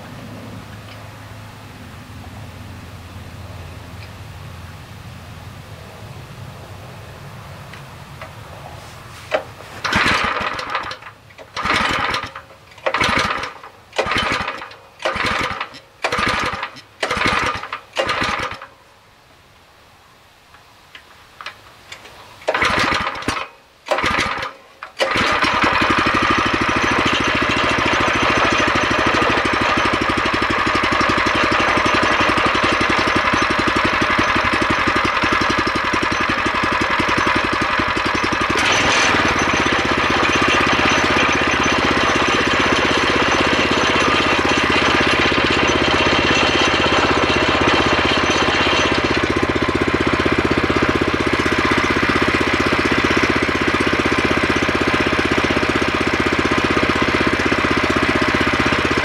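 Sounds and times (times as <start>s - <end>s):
small engine cranking and starting: 9.3s - 18.7s, 21.9s - 59.0s.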